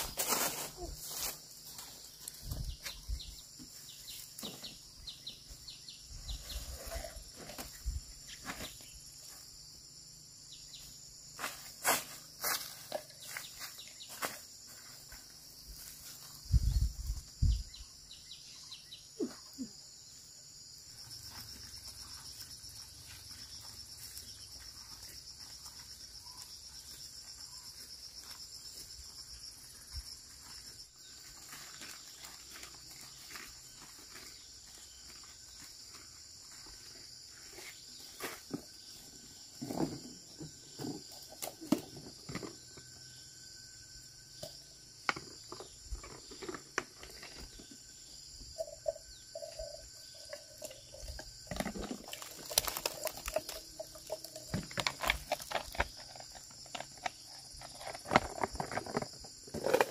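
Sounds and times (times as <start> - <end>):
leaves rustling: 0.0 - 3.4
insects chirring: 0.0 - 59.9.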